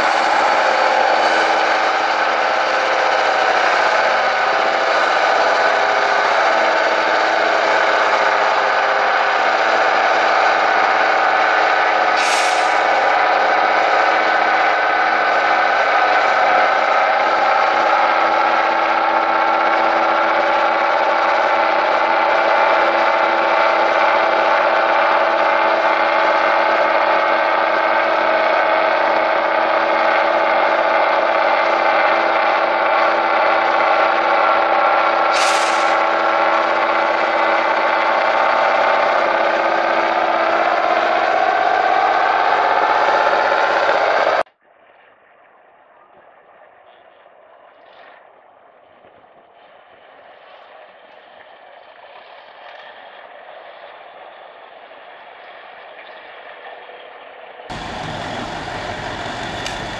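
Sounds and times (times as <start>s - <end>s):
diesel truck engine under load: 0.0s - 44.5s, 48.8s - 59.9s
short hiss bursts: 12.2s - 12.9s, 35.4s - 36.0s.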